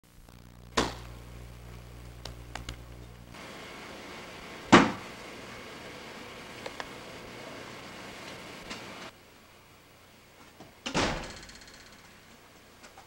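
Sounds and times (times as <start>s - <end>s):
low hum: 0.0s - 10.2s
tape hiss: 0.0s - 10.9s.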